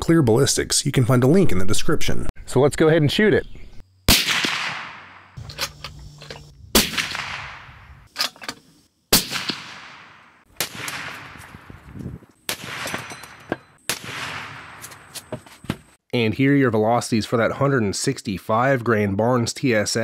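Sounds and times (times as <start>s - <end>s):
suppressed rifle shots echoing: 4.1s - 5.8s, 6.8s - 8.0s, 9.1s - 11.7s, 12.5s - 15.0s.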